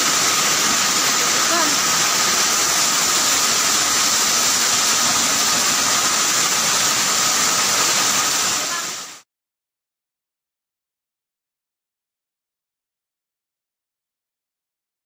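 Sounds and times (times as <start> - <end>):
heavy hail and rain pouring: 0.0 - 9.2.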